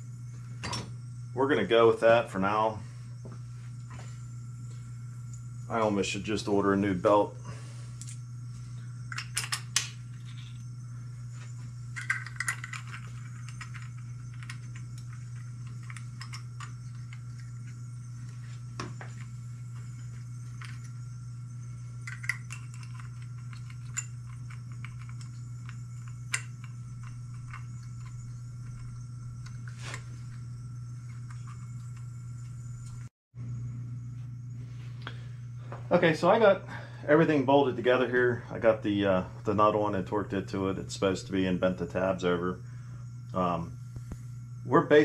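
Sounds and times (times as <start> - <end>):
steady low hum: 0.0 - 45.0
small metal parts clinking: 9.1 - 10.6, 12.0 - 17.4, 22.0 - 29.0.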